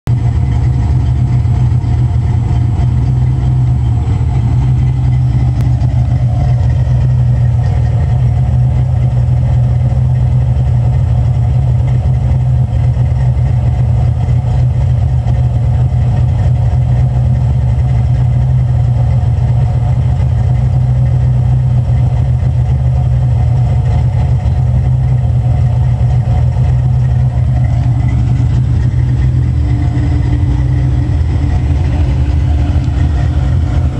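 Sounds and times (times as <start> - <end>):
car engine idling: 0.0 - 33.9.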